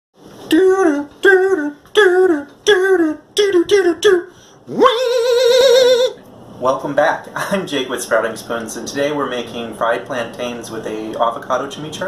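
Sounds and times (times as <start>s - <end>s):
person singing: 0.5s - 6.2s.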